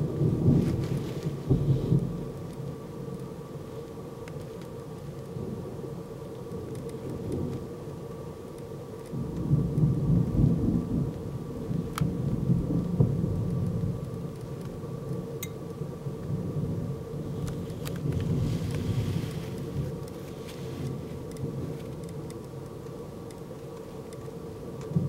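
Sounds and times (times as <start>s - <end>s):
rolling thunder: 0.0s - 2.9s, 9.1s - 14.3s, 16.2s - 20.0s.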